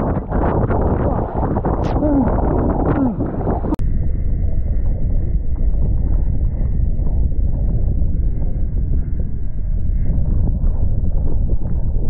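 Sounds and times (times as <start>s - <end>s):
choppy water washing: 0.0s - 3.8s
wind buffeting microphone: 0.0s - 12.0s.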